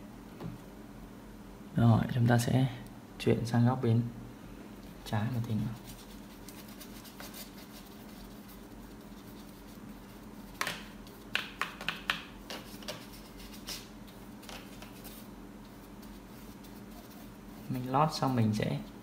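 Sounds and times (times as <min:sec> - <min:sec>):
paintbrush scratching on canvas: 0:05.3 - 0:11.3, 0:12.4 - 0:19.0.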